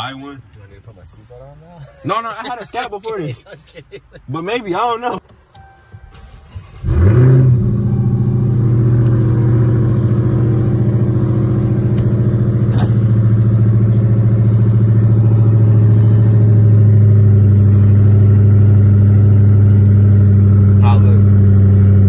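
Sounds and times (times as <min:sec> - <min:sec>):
car engine starting and idling: 0:04.8 - 0:22.0.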